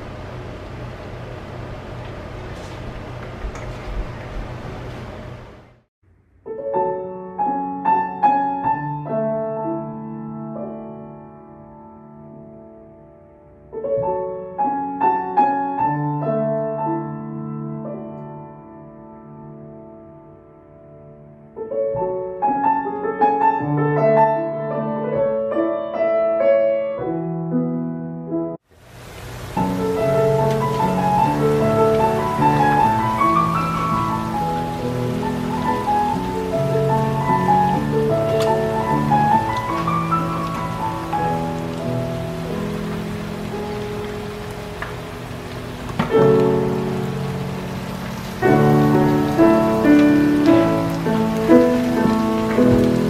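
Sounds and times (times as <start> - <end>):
slow piano music: 0.0 - 53.0
steady hiss: 28.7 - 53.0.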